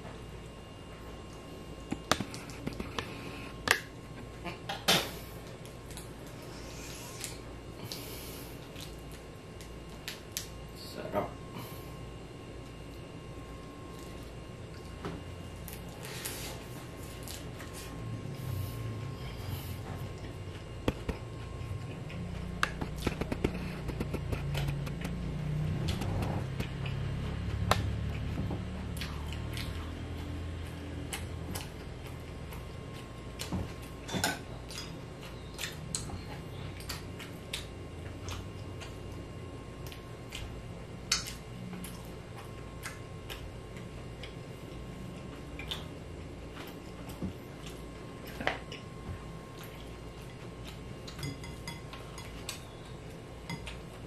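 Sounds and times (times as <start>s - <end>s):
chewing with mouth clicks: 19.8s - 39.2s, 39.8s - 54.0s.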